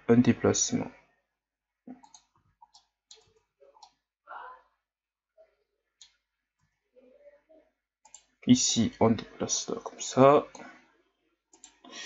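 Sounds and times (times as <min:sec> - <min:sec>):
mouse and keyboard clicks: 0:02.0 - 0:04.0.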